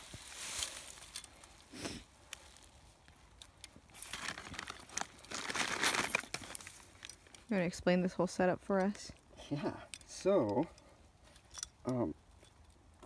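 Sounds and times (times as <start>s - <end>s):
plastic bag crinkling: 3.4s - 7.4s.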